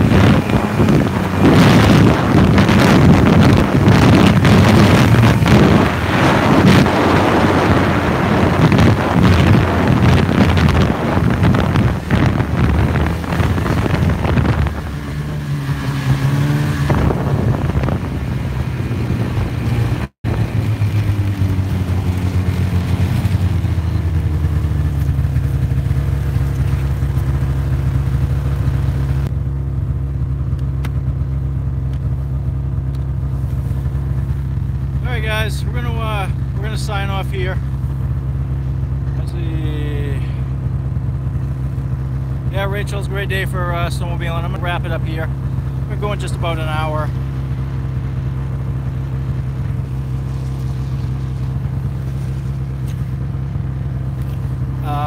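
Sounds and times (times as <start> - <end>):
wind buffeting microphone: 0.0 - 29.3
snowmobile engine: 0.0 - 55.0.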